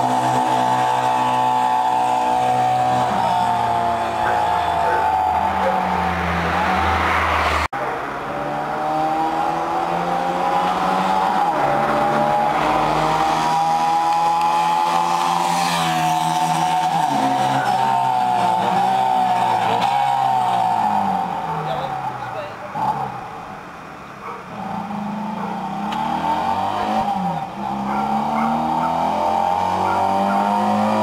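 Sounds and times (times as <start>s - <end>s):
motorcycle engine at high revs: 0.0s - 6.8s, 8.3s - 22.0s, 24.5s - 31.0s.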